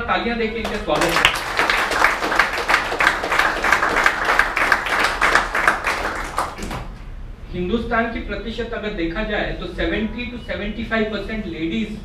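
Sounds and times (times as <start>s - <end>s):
audience applauding: 0.6s - 7.0s.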